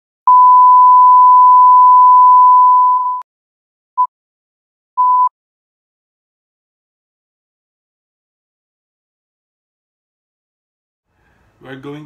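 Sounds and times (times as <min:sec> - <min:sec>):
pure test tone beep: 0:00.3 - 0:03.2, 0:05.0 - 0:05.3.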